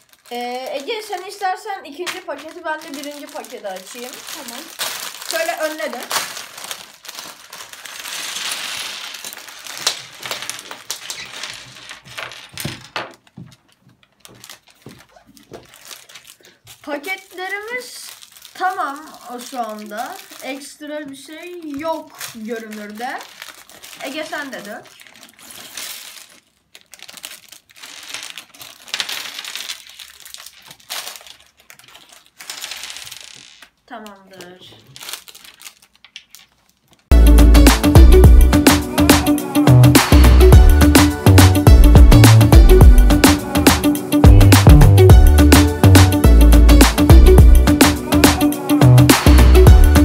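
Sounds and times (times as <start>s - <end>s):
plastic bag crinkling: 0.0s - 37.2s.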